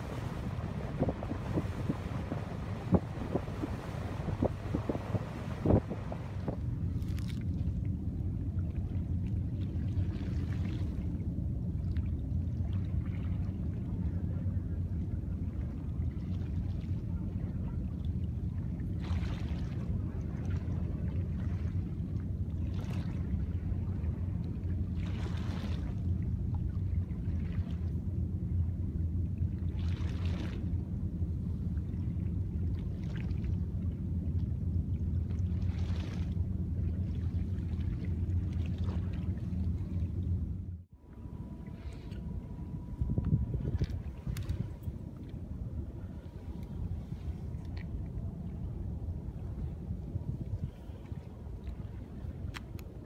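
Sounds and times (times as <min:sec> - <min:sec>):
steady low rumble: 0:00.0 - 0:53.0
water swishing wash: 0:00.0 - 0:53.0.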